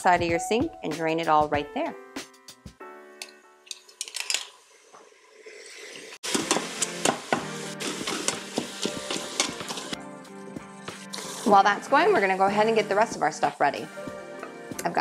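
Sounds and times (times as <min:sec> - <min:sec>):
masher clicking and scraping pot: 0:03.2 - 0:04.6, 0:06.2 - 0:10.0
meat sizzling in a pot: 0:03.8 - 0:10.0, 0:10.6 - 0:15.0.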